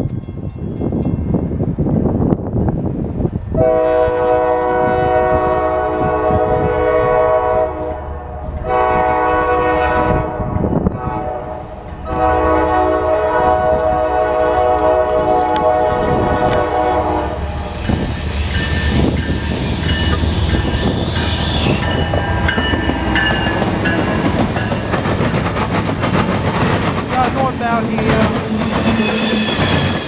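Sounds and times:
train rumble: 0.0s - 30.0s
locomotive air horn blasts: 3.6s - 8.0s, 8.6s - 17.4s.

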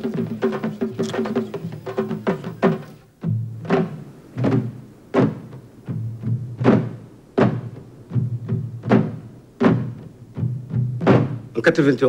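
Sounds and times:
evenly spaced drum strikes: 0.0s - 11.8s.

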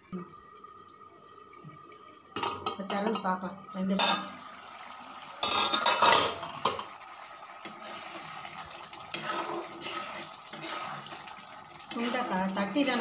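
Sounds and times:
pot lid and utensils clattering: 3.9s - 4.5s, 5.4s - 8.2s, 10.5s - 13.0s
ladle scraping and stirring: 7.6s - 13.0s.

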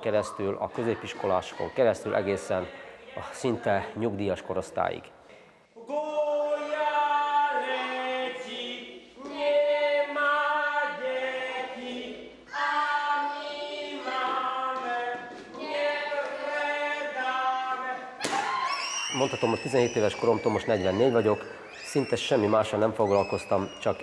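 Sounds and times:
group singing a cappella: 5.8s - 18.2s.

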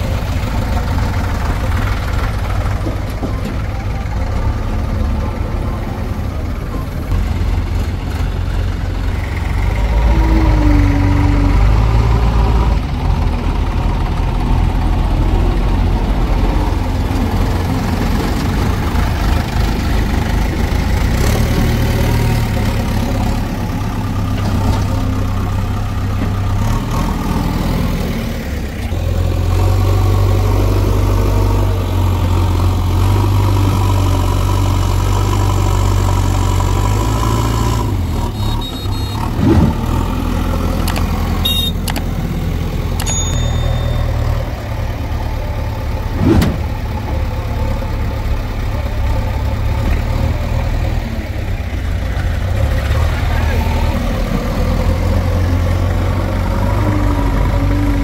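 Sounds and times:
diesel engines rumbling: 0.0s - 58.0s.

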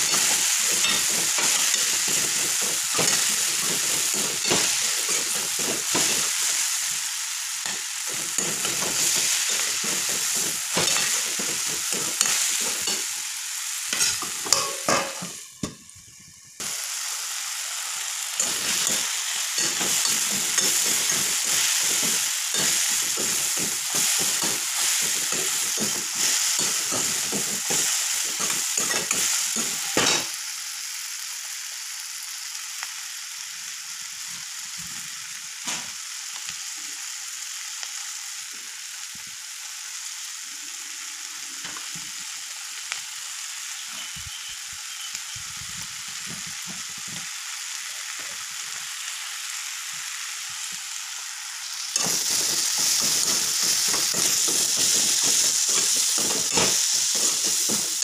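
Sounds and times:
metal spatula scraping a pan: 0.0s - 6.6s, 7.7s - 13.1s, 13.9s - 15.3s
vegetables sizzling in a pan: 0.0s - 58.0s.

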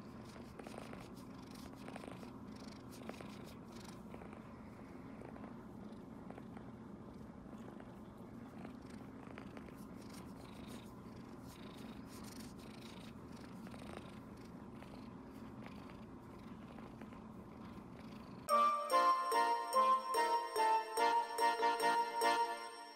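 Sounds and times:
kitten purring: 0.0s - 18.5s
loud music: 18.5s - 22.9s.

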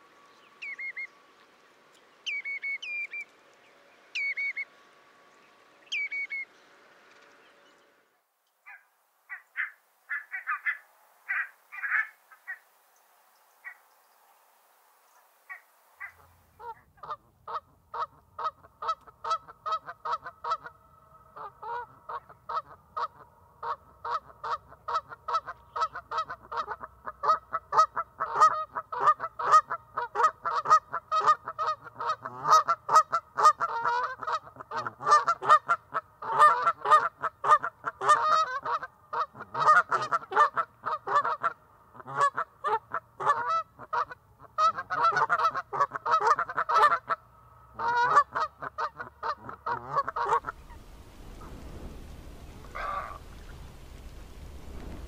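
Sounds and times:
goose honking: 8.7s - 12.6s, 15.5s - 55.0s.

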